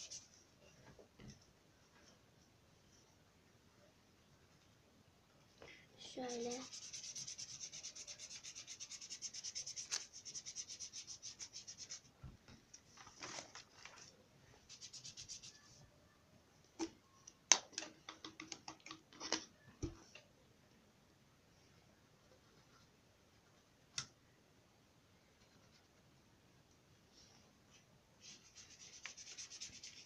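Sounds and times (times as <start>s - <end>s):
colour rubbing on paper: 0.0s - 0.4s, 6.2s - 12.1s, 14.6s - 15.8s, 28.2s - 30.0s.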